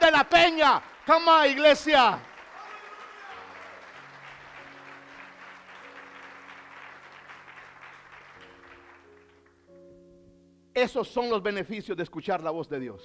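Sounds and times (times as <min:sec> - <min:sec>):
congregation applauding: 0:00.0 - 0:09.8.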